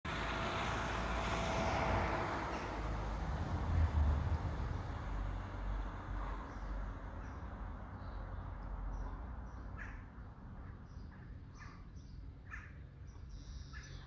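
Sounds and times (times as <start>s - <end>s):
vehicle passing: 0.1s - 9.5s
low rumble: 2.7s - 6.4s.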